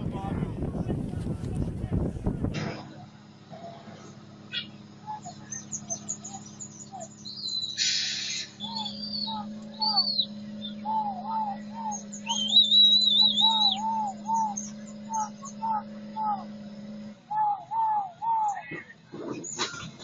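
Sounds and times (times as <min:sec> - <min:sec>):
steady low hum: 0:00.0 - 0:20.0
birds chirping: 0:03.5 - 0:20.0
bird warbling call: 0:04.5 - 0:18.8.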